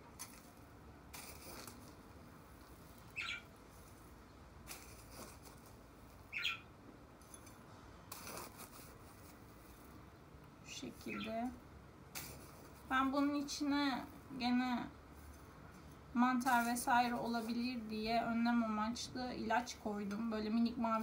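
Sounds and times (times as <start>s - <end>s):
potting mix scraping and rustling: 0.0s - 6.4s, 7.2s - 11.5s, 12.1s - 21.0s
short high bird chirp: 3.1s - 3.5s, 6.3s - 6.7s.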